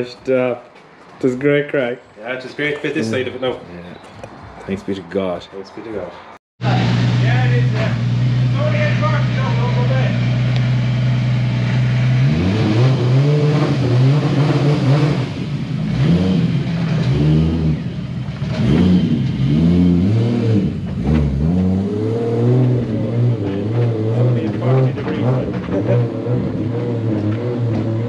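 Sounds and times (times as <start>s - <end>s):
car engine idling and revving: 6.6s - 28.0s.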